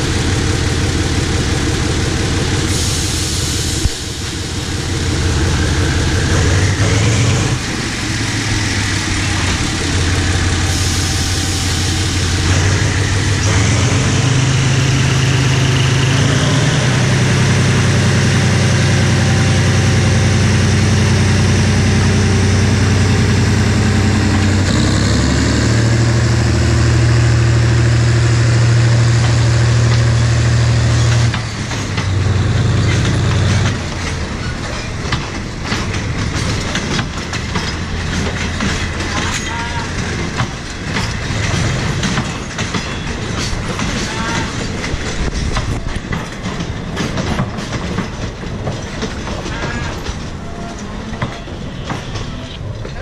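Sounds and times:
diesel locomotive engine: 0.0s - 53.0s.

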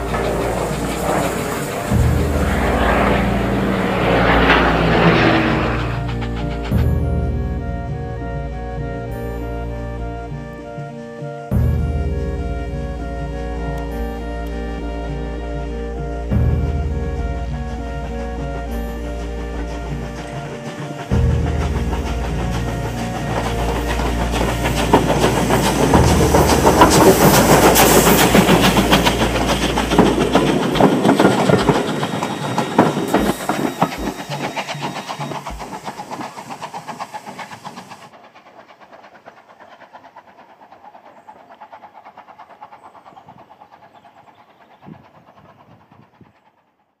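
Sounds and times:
train wheels clattering over rail joints: 0.0s - 7.1s, 17.5s - 46.7s
steam hissing: 0.0s - 9.6s, 10.3s - 46.5s.

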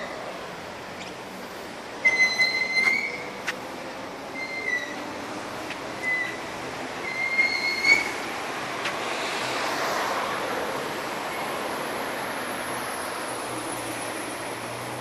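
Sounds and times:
high-pitched squeals: 2.0s - 3.5s, 4.3s - 5.2s, 5.9s - 8.4s
vehicle passing: 7.8s - 15.0s.

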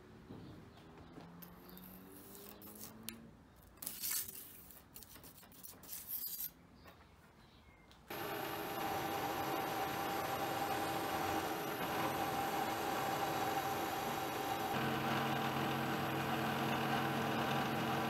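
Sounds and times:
steel rule scraping on steel: 3.8s - 6.6s
milling machine running: 8.1s - 18.0s.

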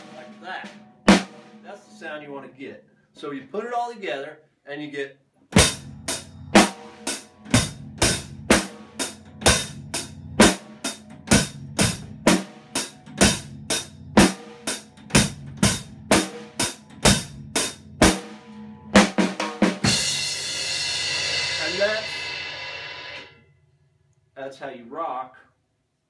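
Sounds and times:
drum kit slow rock beat: 0.0s - 1.6s, 5.6s - 23.3s.

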